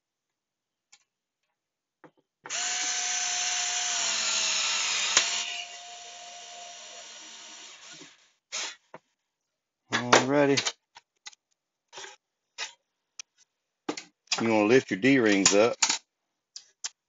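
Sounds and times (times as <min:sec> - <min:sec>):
cordless drill whining: 0:02.5 - 0:08.3.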